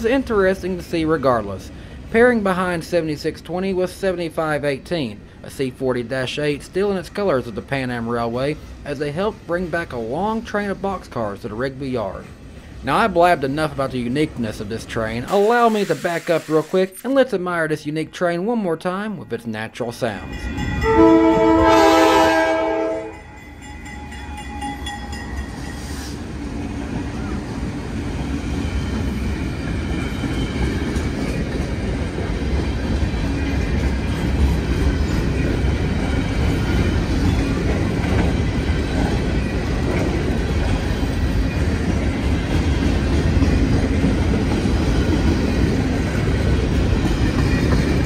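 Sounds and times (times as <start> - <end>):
freight train rumbling: 0.0 - 15.4, 18.9 - 48.0
train wheels clacking: 28.1 - 48.0.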